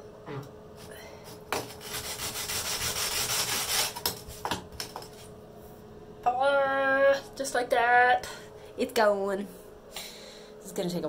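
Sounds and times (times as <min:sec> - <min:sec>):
pumice stone rasping on enamel: 0:01.5 - 0:04.0.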